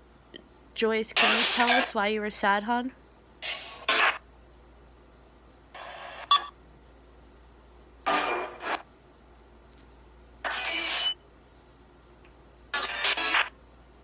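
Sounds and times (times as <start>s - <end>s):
radio static bursts: 3.4s - 4.2s, 8.1s - 8.8s, 10.5s - 11.2s.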